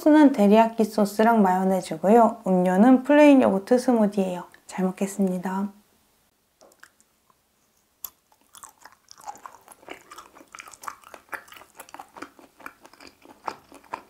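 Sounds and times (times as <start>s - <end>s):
chewing clicks: 6.6s - 7.1s, 8.0s - 14.0s.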